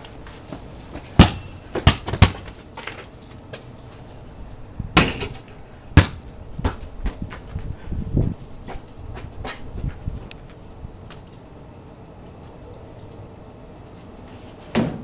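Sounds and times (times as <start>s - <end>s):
basketball bouncing: 1.2s - 2.6s, 5.0s - 6.8s
basketball striking hoop: 1.2s - 2.6s, 5.0s - 6.8s.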